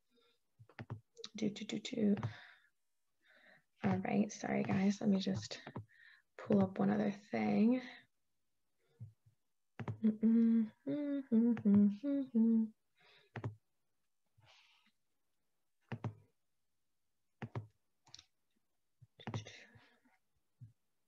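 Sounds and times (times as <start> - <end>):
woman humming: 10.0 - 12.8.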